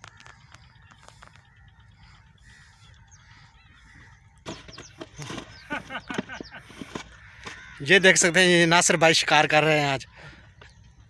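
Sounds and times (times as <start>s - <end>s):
faint bird calls: 0.0s - 8.4s.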